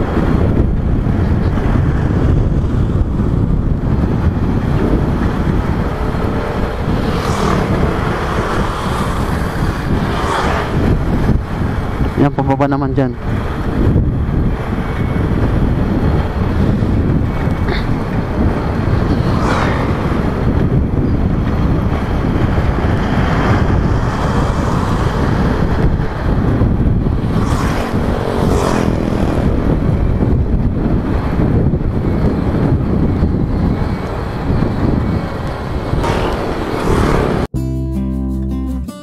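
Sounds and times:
motorcycle engine: 0:00.0 - 0:12.2, 0:13.2 - 0:37.5
wind rushing over microphone: 0:00.0 - 0:37.6.

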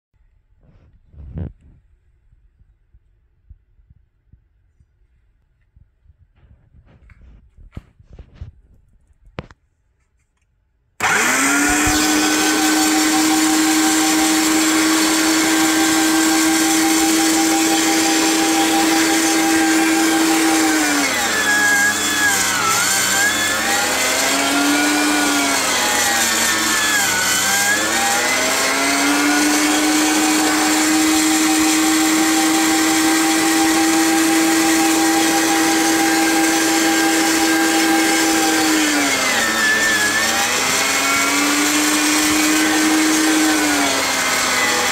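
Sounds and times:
electric meat grinder humming: 0:11.0 - 0:44.9.

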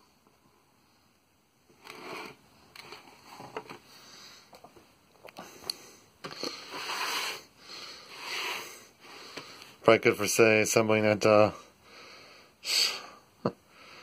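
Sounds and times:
person sniffing: 0:05.4 - 0:09.6.

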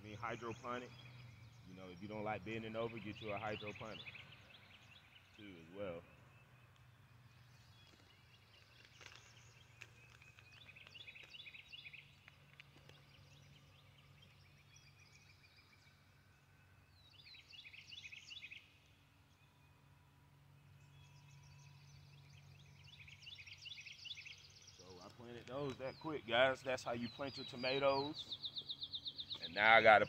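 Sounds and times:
faint low hum: 0:00.0 - 0:30.0
songbird chirping: 0:00.0 - 0:30.0.

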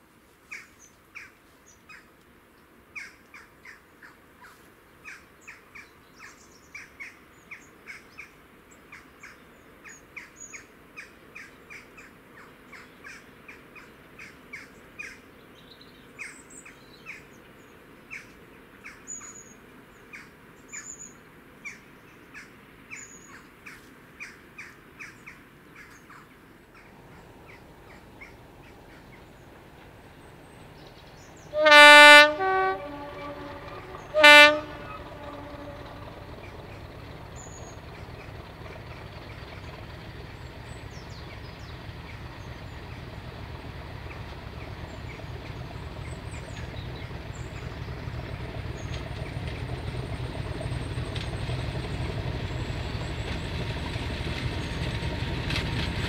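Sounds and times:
bird calling: 0:24.2 - 0:55.0
diesel locomotive rumble: 0:26.6 - 0:56.0
two-tone train horn: 0:31.4 - 0:38.6, 0:45.0 - 0:53.7.

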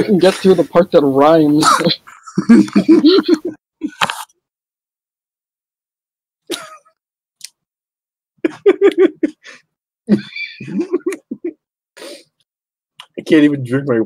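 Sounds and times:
person laughing: 0:01.6 - 0:04.0, 0:06.5 - 0:06.9, 0:08.4 - 0:11.6
person breathing: 0:09.4 - 0:09.7, 0:12.0 - 0:12.4.

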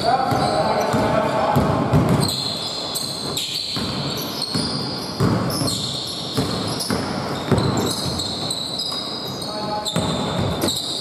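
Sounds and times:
sneakers squeaking on court: 0:00.0 - 0:11.0
basketball bouncing on hardwood: 0:00.2 - 0:02.5, 0:03.2 - 0:08.6, 0:09.9 - 0:10.8.

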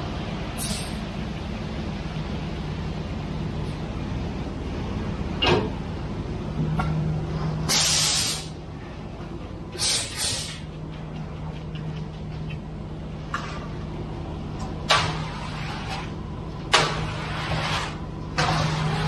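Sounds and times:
truck engine hum: 0:00.0 - 0:17.2
short bursts of hissing: 0:07.7 - 0:08.5, 0:09.8 - 0:10.6.

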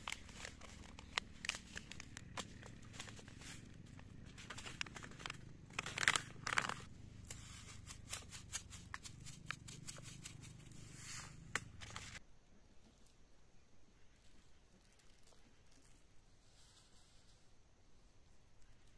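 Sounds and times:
plastic seed packet crinkling: 0:00.0 - 0:10.7.

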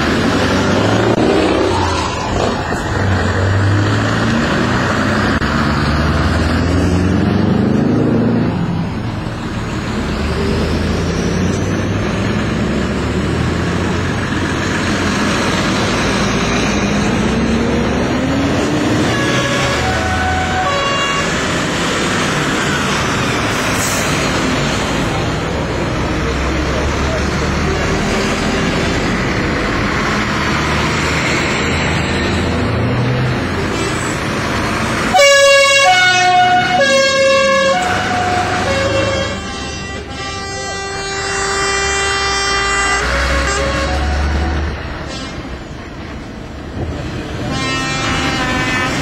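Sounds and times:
lorries driving past: 0:00.0 - 0:49.0
truck air horn blasts: 0:18.8 - 0:21.6, 0:35.1 - 0:45.6, 0:47.4 - 0:49.0.

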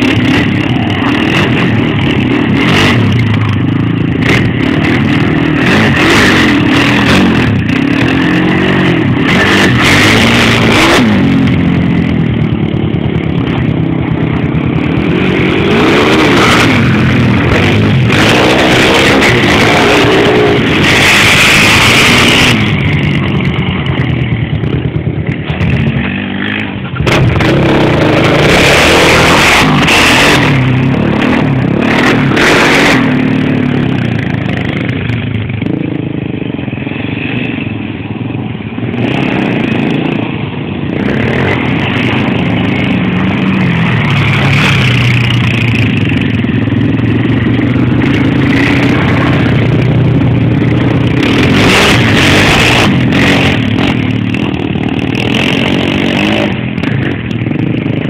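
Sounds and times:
quad bike engine revving: 0:00.0 - 0:58.0.

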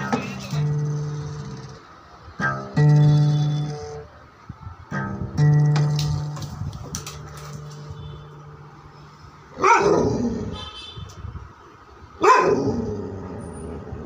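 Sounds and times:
dog bark-like yowl: 0:09.6 - 0:10.6, 0:12.2 - 0:13.0.

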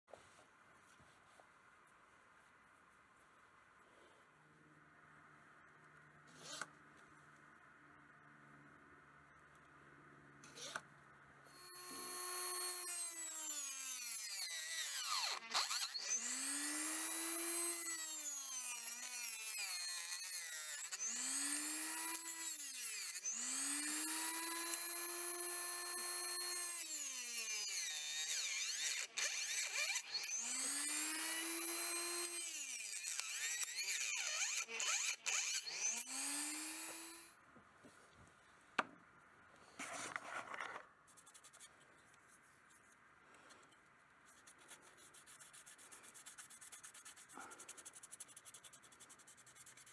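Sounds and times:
electric saw whining: 0:11.5 - 0:37.4.

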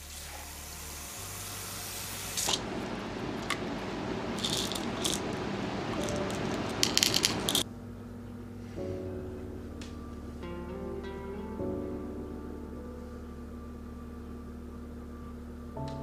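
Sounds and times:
pill bottle opening: 0:04.4 - 0:05.3, 0:06.0 - 0:07.6
pills rattling: 0:04.4 - 0:05.3, 0:06.0 - 0:07.6.

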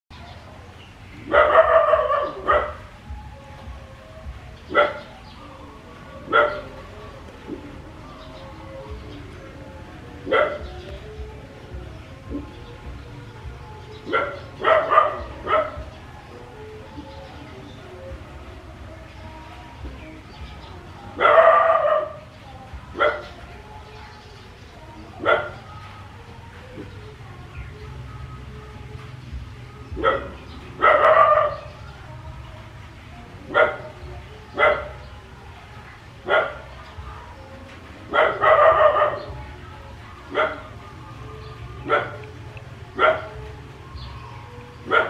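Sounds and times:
dog barking: 0:01.3 - 0:02.9, 0:04.7 - 0:05.1, 0:06.3 - 0:06.7, 0:10.2 - 0:10.7, 0:14.0 - 0:15.9, 0:21.2 - 0:22.2, 0:23.0 - 0:23.4, 0:25.2 - 0:25.7, 0:30.0 - 0:31.7, 0:33.5 - 0:35.0, 0:36.2 - 0:36.7, 0:38.1 - 0:39.4, 0:40.3 - 0:40.8, 0:41.8 - 0:42.3, 0:43.0 - 0:43.5.

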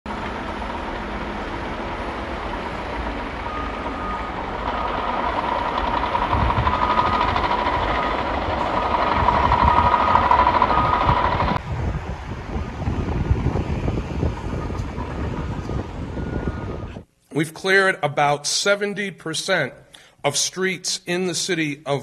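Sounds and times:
heavy machine engine rumble: 0:00.1 - 0:17.1
backup alarm beeping: 0:03.1 - 0:11.6.

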